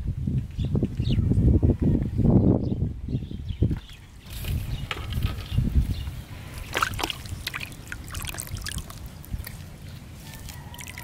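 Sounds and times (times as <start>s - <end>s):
water splashing in plastic tub: 6.6s - 9.6s
short crackly splashes: 6.6s - 9.7s.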